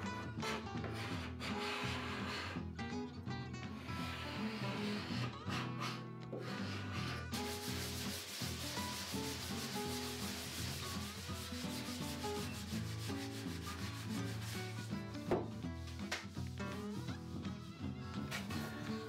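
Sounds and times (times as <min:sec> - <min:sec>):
background music: 0:00.0 - 0:19.0
sandpaper scratching: 0:00.4 - 0:02.6, 0:03.8 - 0:15.0.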